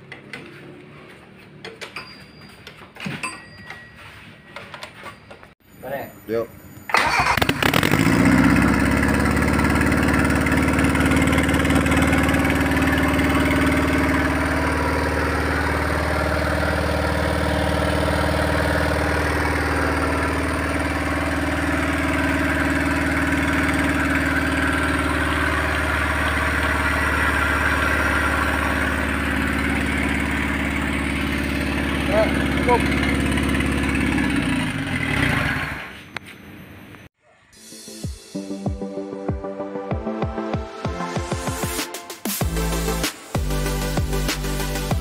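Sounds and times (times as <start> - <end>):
car engine idling: 7.9 - 35.3.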